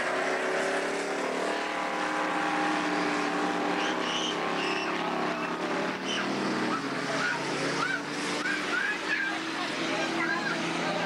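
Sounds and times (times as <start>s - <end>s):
race car engines droning: 0.0s - 11.0s.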